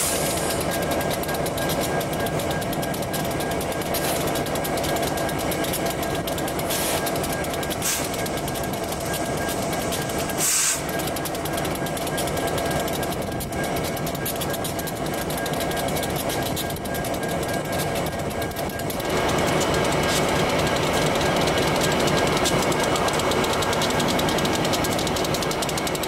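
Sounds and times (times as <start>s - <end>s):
diesel locomotives idling: 0.0s - 26.0s
air brake hissing: 6.7s - 7.1s, 7.8s - 8.1s, 10.2s - 10.9s.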